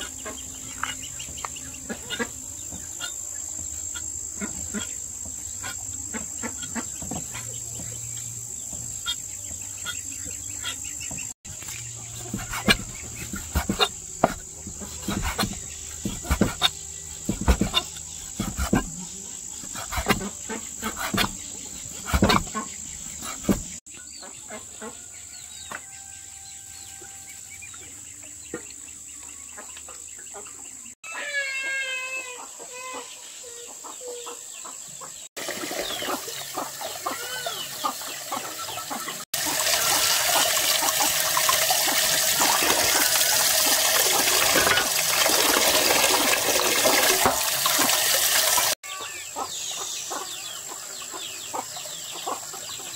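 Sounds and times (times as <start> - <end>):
running water hissing: 0.0 - 23.8, 35.4 - 48.8
chickens clucking: 0.0 - 25.9, 32.4 - 52.9.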